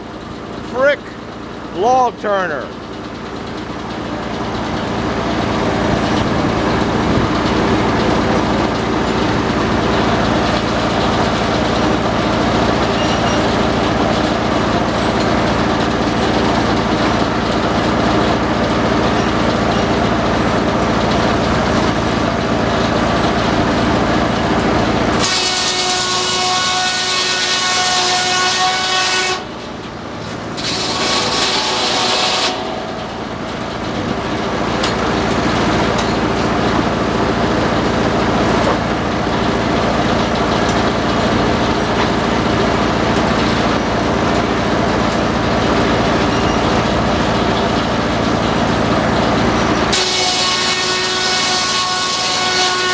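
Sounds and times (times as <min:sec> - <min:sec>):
sawmill running with low hum: 0:00.0 - 0:52.9
saw blade whining through log: 0:25.1 - 0:36.5, 0:49.8 - 0:52.9.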